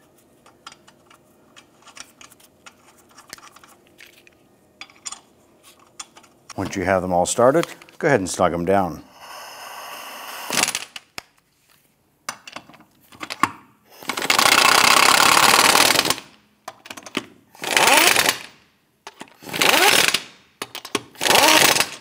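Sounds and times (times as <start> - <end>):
pneumatic impact wrench bursts: 9.1 - 11.0, 13.9 - 16.3, 17.6 - 18.6, 19.4 - 20.4, 21.1 - 22.0.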